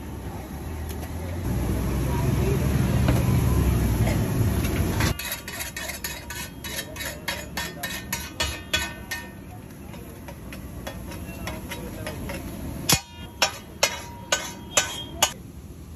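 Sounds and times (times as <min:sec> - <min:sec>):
metal spatula clacking on griddle: 0:04.6 - 0:15.4
spatula scraping griddle: 0:04.6 - 0:15.4
loud metal clangs: 0:04.9 - 0:09.5, 0:10.3 - 0:15.4.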